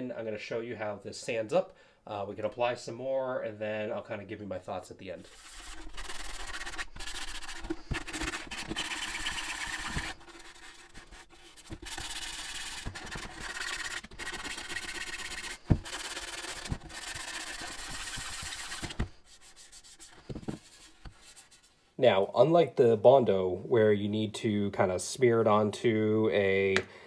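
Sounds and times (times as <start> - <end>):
sanding block scratching plastic: 5.2 - 21.7.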